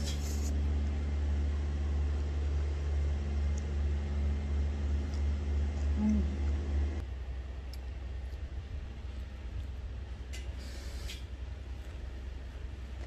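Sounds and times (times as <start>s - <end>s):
machine humming low: 0.0s - 13.0s.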